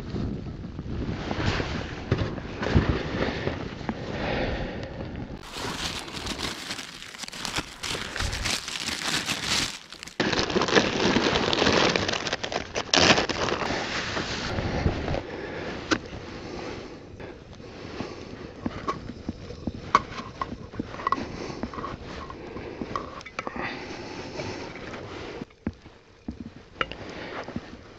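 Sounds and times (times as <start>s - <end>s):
plastic bag crinkling: 5.4s - 12.5s.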